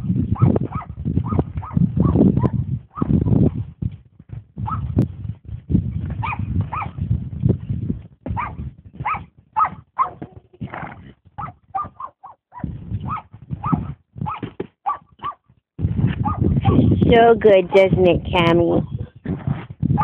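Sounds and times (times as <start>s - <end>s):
horse rolling in sand: 5.2s - 11.8s.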